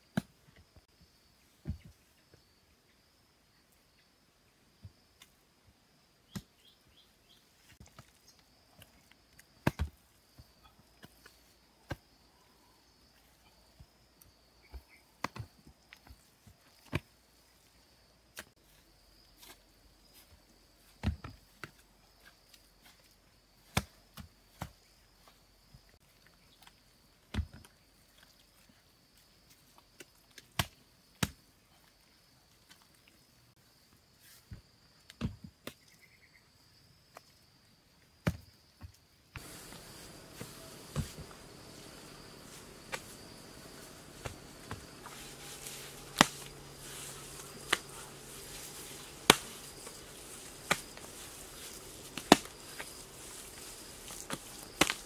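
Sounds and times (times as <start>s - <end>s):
high insect drone: 39.4s - 55.0s
hand slapping wet mortar: 44.2s - 53.0s.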